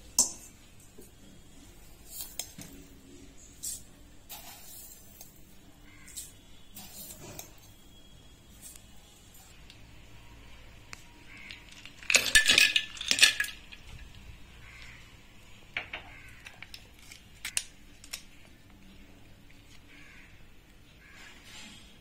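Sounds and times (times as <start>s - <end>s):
ice cubes clattering in metal jar: 11.5s - 14.0s.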